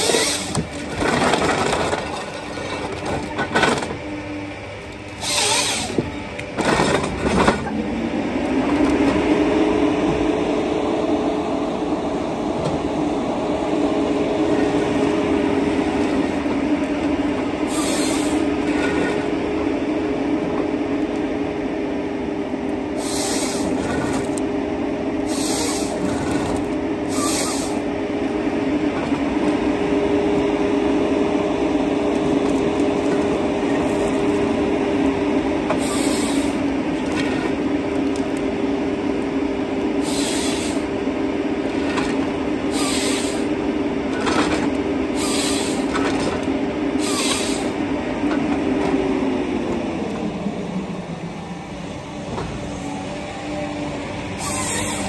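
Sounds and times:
harvester engine droning: 0.0s - 55.0s
saw hissing bursts: 54.4s - 55.0s.

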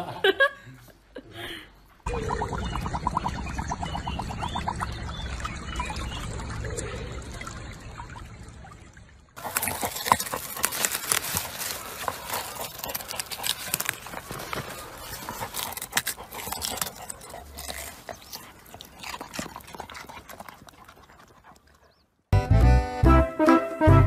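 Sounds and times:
water bubbling: 2.1s - 21.9s
shallow water gurgling: 2.1s - 22.0s
dog biting radish: 9.4s - 21.6s
dog digging in soil: 9.4s - 21.9s.

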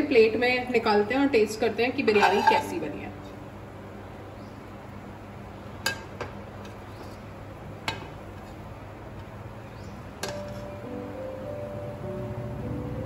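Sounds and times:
soft background music: 0.0s - 4.8s, 10.2s - 13.0s.

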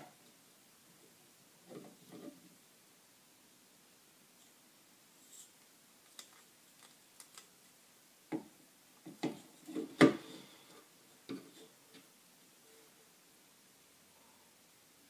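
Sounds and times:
small clicks and light knocks: 6.0s - 7.5s.

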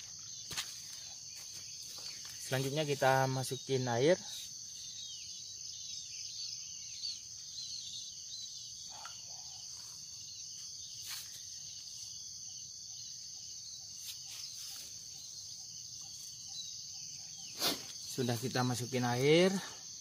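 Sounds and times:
high-pitched insect drone: 0.0s - 20.0s.

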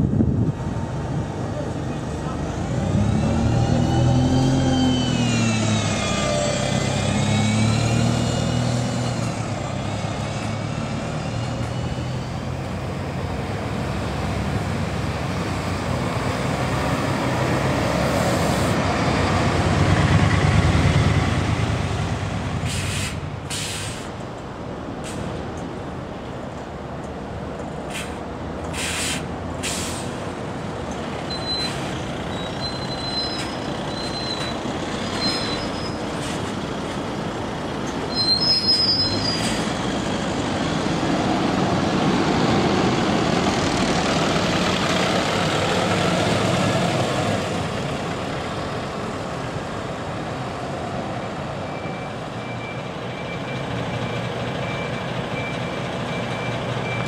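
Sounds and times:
bus engine passing: 0.0s - 57.0s
air brake hisses: 22.6s - 24.1s, 27.9s - 30.2s
brake squeal: 31.2s - 36.6s, 37.8s - 40.3s, 51.6s - 57.0s
faint reversing beeper: 31.3s - 34.6s, 51.6s - 57.0s.

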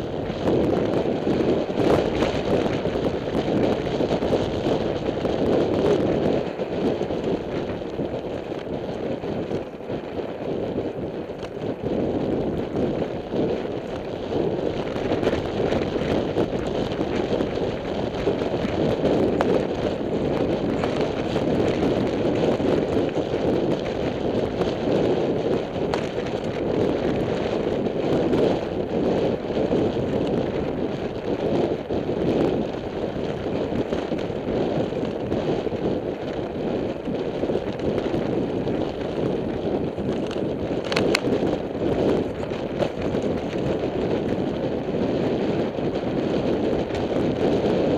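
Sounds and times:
tyres on dirt and gravel: 0.0s - 29.1s
bike clicks and rattles: 0.0s - 47.9s
wind rushing over microphone: 0.0s - 47.9s.

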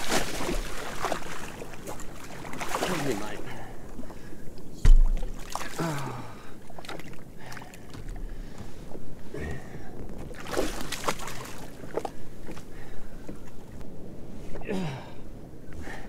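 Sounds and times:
water splashing against hull: 0.0s - 9.0s, 10.0s - 13.8s.

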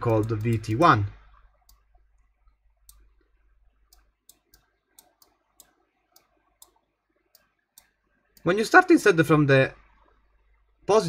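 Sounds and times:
computer mouse clicks: 0.0s - 0.9s, 1.6s - 8.5s.

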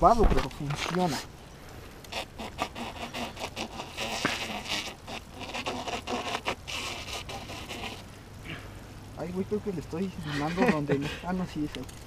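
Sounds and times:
hands scraping and rubbing tyre: 0.4s - 1.3s, 2.1s - 8.0s.

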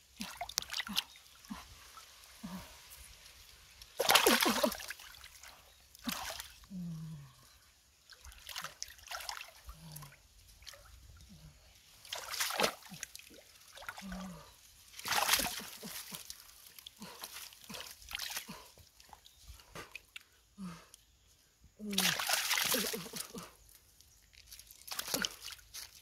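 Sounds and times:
hands splashing in muddy water: 3.8s - 6.6s, 12.0s - 19.2s, 21.9s - 23.5s, 24.3s - 26.0s.

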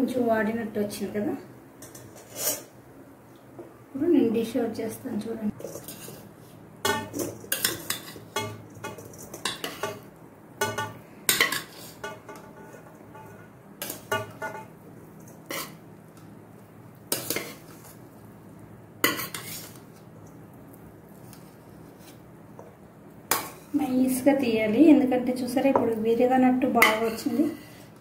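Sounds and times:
metal pot clanking against steel bowl: 6.8s - 14.7s.

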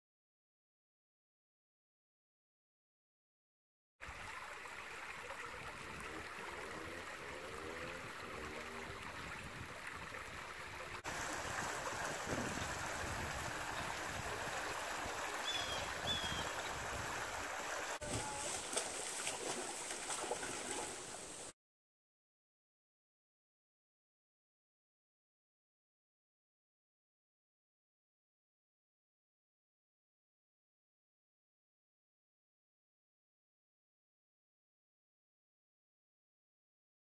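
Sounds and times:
river water trickling over rocks: 4.0s - 21.5s
water splashing: 4.0s - 21.5s.

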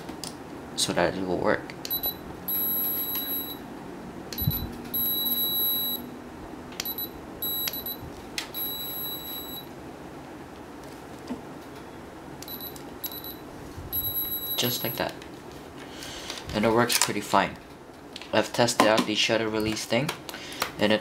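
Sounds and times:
high electronic beeps: 1.9s - 3.6s, 4.4s - 6.1s, 6.8s - 8.0s, 8.6s - 9.7s, 12.5s - 13.4s, 14.0s - 15.0s.

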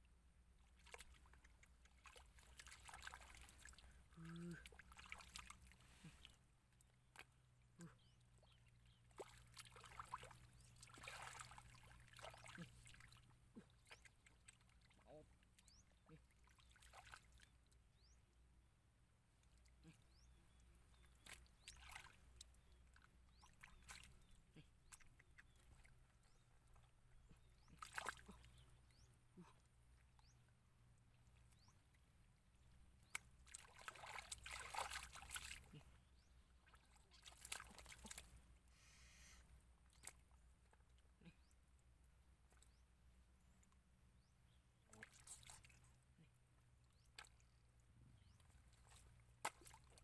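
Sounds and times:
hands splashing in muddy water: 0.7s - 6.4s, 9.0s - 15.7s, 16.4s - 17.5s, 27.4s - 28.6s, 33.0s - 36.0s, 36.6s - 38.4s, 48.3s - 50.0s.

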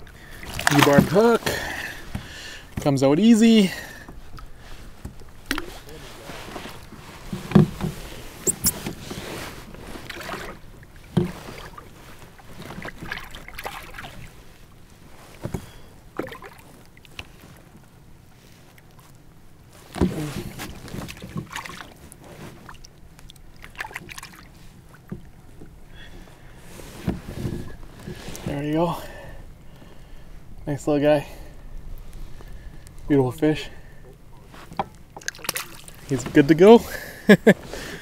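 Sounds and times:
knocks and thumps against kayak hull: 0.0s - 3.0s, 4.1s - 14.4s, 15.2s - 17.4s, 19.8s - 22.8s, 26.9s - 28.6s, 34.6s - 36.5s.

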